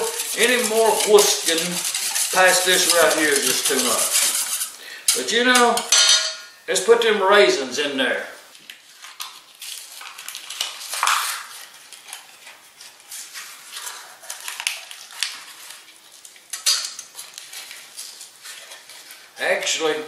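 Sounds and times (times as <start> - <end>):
utensil scraping mixing bowl: 0.0 - 6.0.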